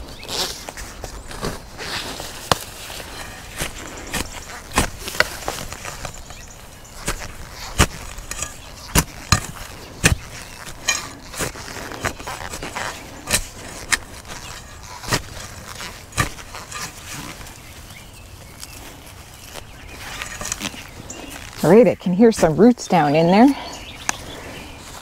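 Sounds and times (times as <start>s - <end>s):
shovel stabbing and scraping soil: 0.2s - 23.5s.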